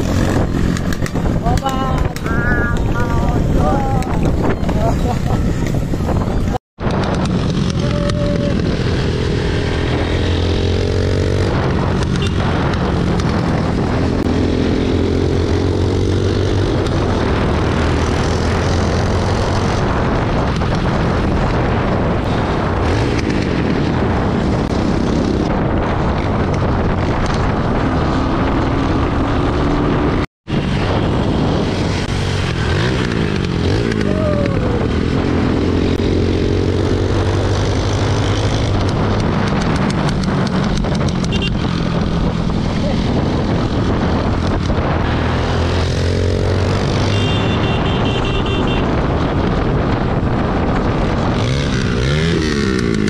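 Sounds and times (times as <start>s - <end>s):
motorcycle engine running: 0.0s - 19.2s, 30.6s - 53.0s
wind rumble on microphone: 0.0s - 53.0s.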